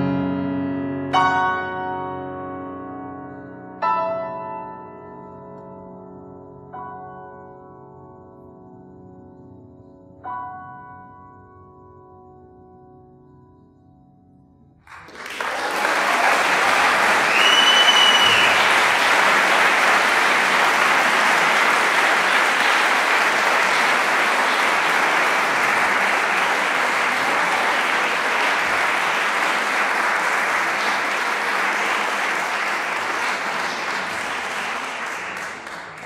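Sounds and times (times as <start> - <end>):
audience applauding: 14.8 - 36.0
high whistle: 17.0 - 19.0.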